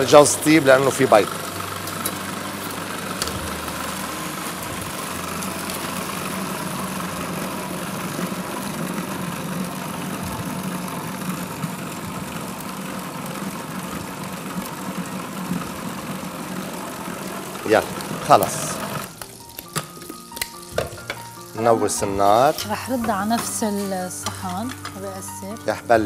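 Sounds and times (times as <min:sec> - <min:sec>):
food processor running: 0:00.0 - 0:19.4.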